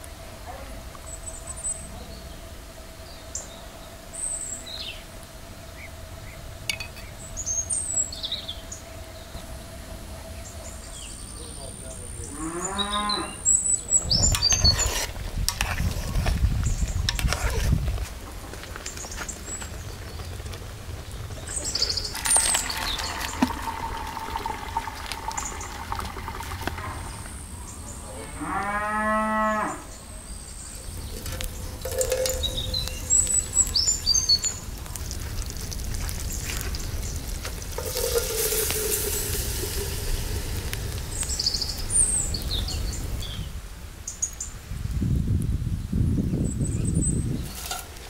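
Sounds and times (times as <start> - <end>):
cow mooing: 12.3 - 13.4, 28.1 - 29.9.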